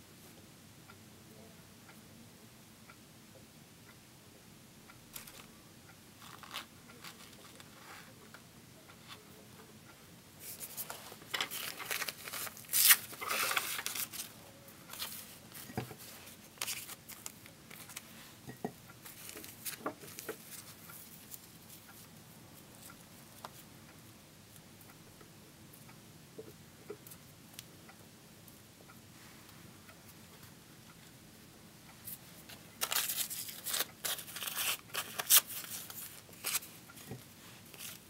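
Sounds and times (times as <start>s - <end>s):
paper tearing and crumpling: 11.5s - 14.2s.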